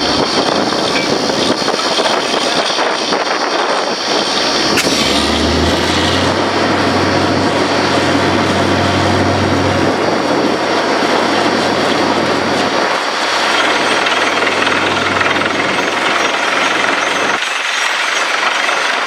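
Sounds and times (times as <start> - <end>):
drilling rig machinery din: 0.0 - 19.0
deep hum: 4.5 - 17.4.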